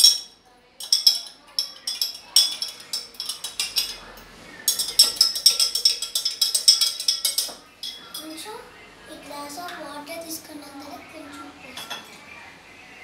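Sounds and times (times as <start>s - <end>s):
spoon clinking against glass: 0.0s - 8.4s.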